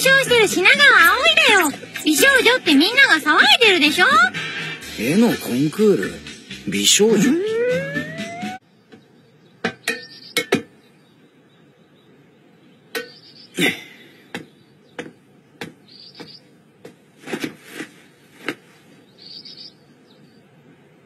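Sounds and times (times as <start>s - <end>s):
small birds chirping: 7.5s - 16.9s, 18.6s - 20.8s.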